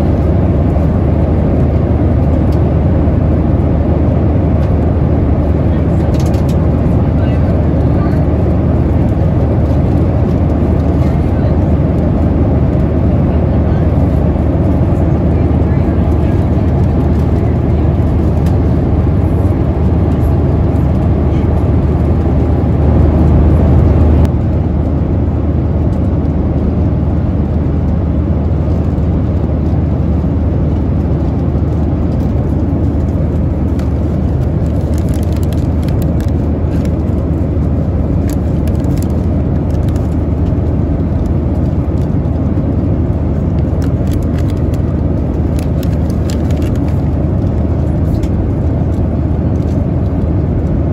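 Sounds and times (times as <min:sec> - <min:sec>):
airplane cabin engine rush: 0:00.0 - 0:50.9
snack packaging crinkling: 0:34.6 - 0:37.0, 0:38.2 - 0:40.5, 0:43.8 - 0:47.1.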